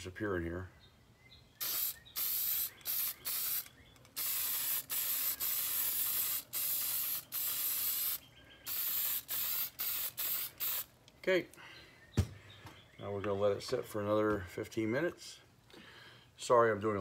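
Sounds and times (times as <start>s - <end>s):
aerosol spray can hissing: 1.6s - 10.9s.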